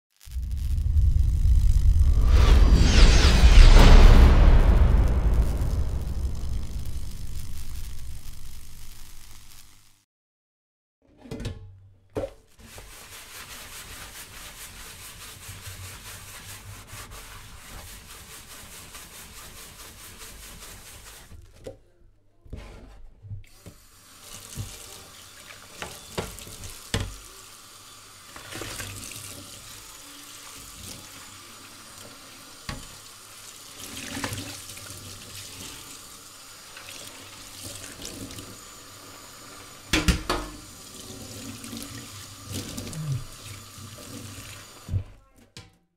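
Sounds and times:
dish being scrubbed: 0:12.6 - 0:21.6
tap water running into sink: 0:23.5 - 0:45.0
dish knocking metal sink: 0:39.9 - 0:40.6.

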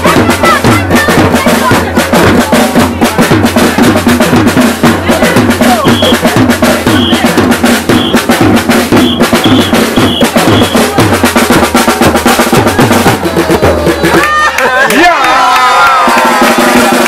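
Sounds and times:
loud dance music: 0:00.0 - 0:02.3.

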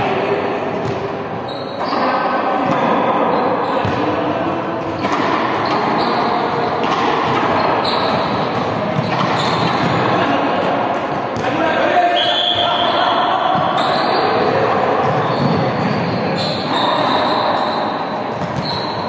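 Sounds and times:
sneaker squeaks: 0:00.7 - 0:04.2, 0:04.8 - 0:10.3, 0:11.4 - 0:19.0
balls bouncing on court: 0:00.7 - 0:11.7, 0:12.5 - 0:17.4, 0:18.2 - 0:19.0.

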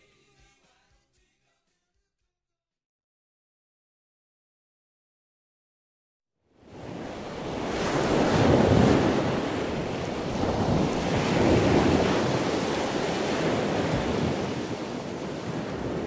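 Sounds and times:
wind: 0:06.5 - 0:16.0
ocean waves washing: 0:06.6 - 0:16.0.

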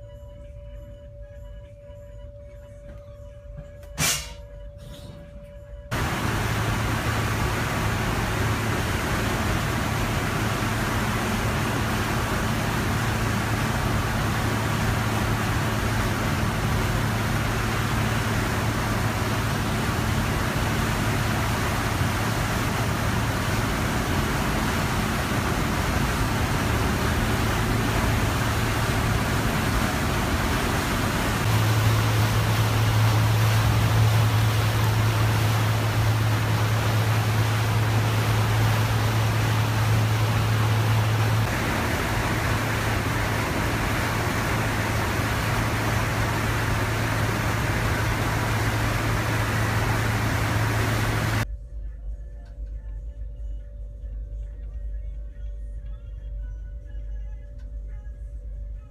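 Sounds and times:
ship engines humming: 0:05.7 - 0:51.5
propeller wash churning water: 0:05.9 - 0:51.5.

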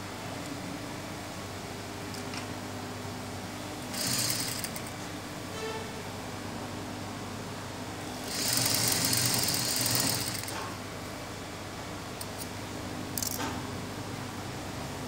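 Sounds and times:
sewing machine stitching: 0:03.9 - 0:04.9, 0:08.3 - 0:10.7.

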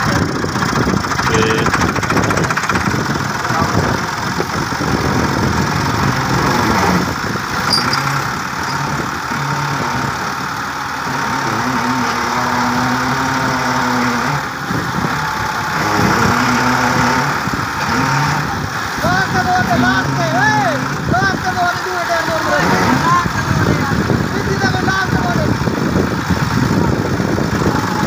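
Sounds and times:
tractor diesel engine straining: 0:00.0 - 0:28.0.

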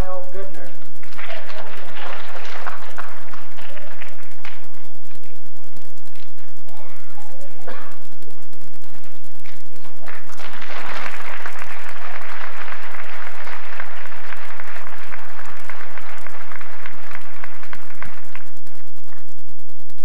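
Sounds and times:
audience applauding: 0:01.0 - 0:05.2, 0:09.4 - 0:19.2.

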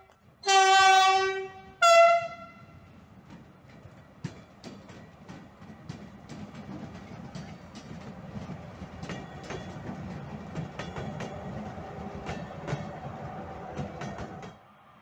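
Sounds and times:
diesel locomotives rumbling past: 0:00.0 - 0:15.0
wheels clicking over rail joints: 0:03.0 - 0:14.6.

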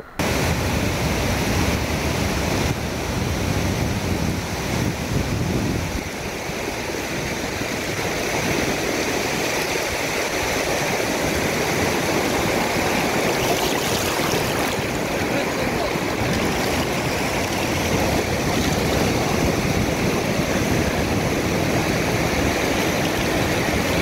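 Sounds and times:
sea surf breaking on beach: 0:00.0 - 0:24.0
wind rumbling on microphone: 0:00.0 - 0:24.0.

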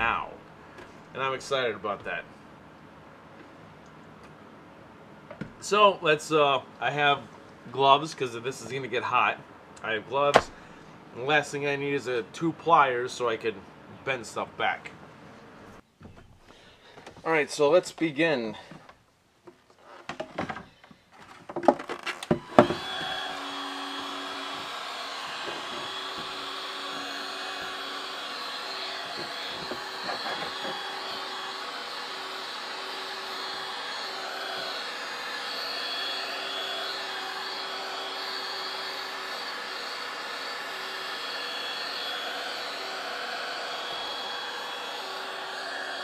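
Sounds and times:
heat gun fan blowing: 0:22.3 - 0:46.0.

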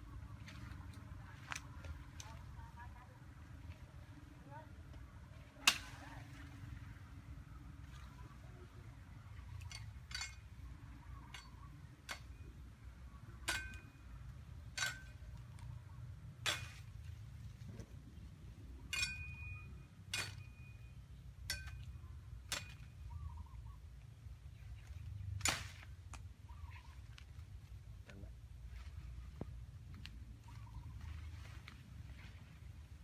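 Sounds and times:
steady low rumble: 0:00.0 - 0:33.0
machete chopping bamboo: 0:13.4 - 0:14.0, 0:16.4 - 0:17.0, 0:20.1 - 0:20.5, 0:21.5 - 0:22.9, 0:25.4 - 0:26.2.

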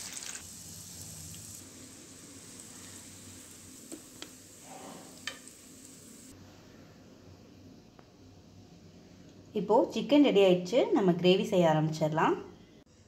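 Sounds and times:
hot oil sizzling in a frying pan: 0:00.0 - 0:06.4.

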